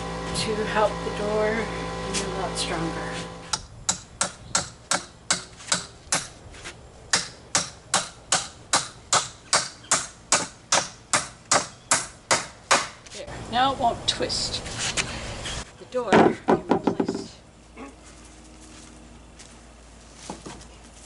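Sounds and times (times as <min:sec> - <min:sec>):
hammer striking nails into wood: 0:03.5 - 0:06.3, 0:07.1 - 0:13.0.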